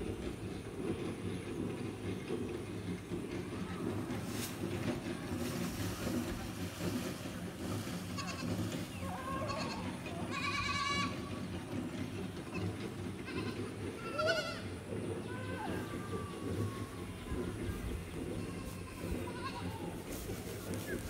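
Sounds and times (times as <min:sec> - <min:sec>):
goats bleating: 0:08.0 - 0:11.5, 0:12.5 - 0:20.9
steady low rumble: 0:15.9 - 0:21.0.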